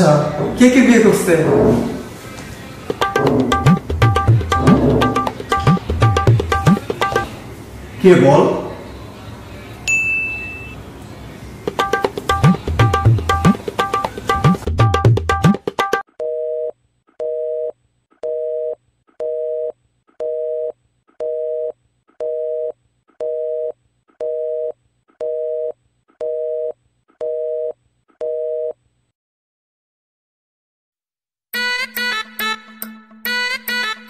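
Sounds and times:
tabla music: 2.9 - 7.3, 11.7 - 16.0.

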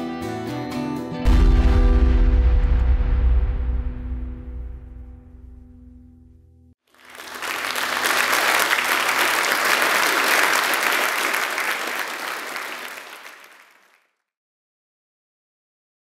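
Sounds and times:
audience applause: 6.9 - 14.0.

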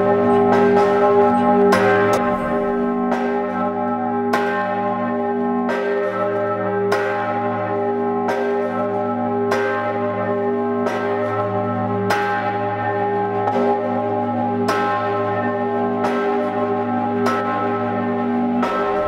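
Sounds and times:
deep bell ringing: 0.0 - 13.0.

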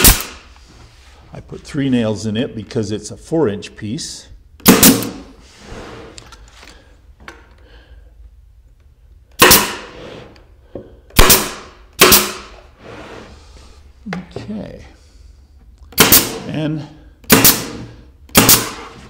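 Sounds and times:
nail gun firing: 0.0 - 0.4, 4.6 - 5.2, 9.4 - 9.9, 11.2 - 12.5, 15.9 - 16.5, 17.2 - 19.0.

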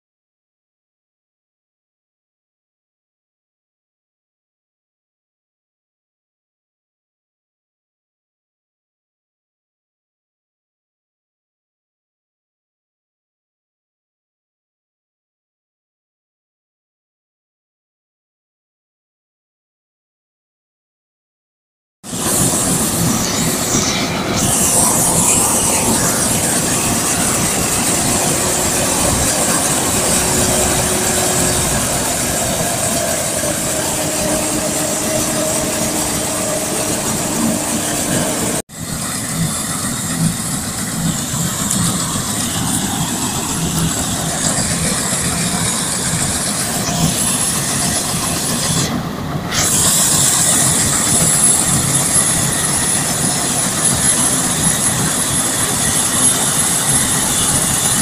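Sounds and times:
combine harvester running: 22.1 - 58.0
thin high whine: 22.1 - 58.0.

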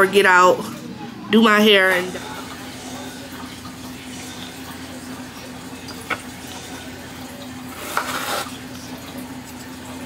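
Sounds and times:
knife slicing through pepper: 7.7 - 8.6.

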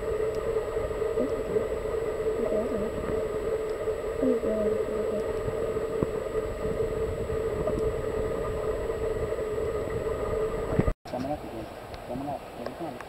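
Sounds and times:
underwater hum and rumble: 0.0 - 13.0
faint clicks: 0.2 - 0.5, 3.0 - 3.8, 5.1 - 6.2.

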